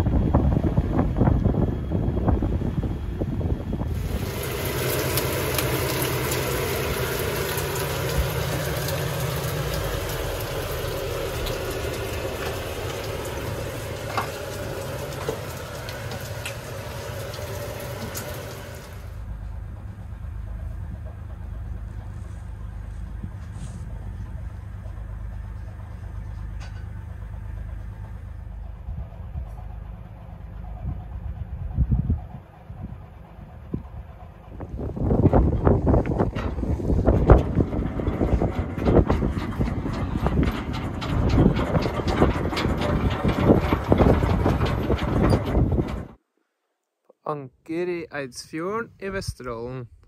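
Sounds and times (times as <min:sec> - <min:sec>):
rush of water and wind: 0:00.0 - 0:19.0
boat engine drone: 0:00.0 - 0:46.6.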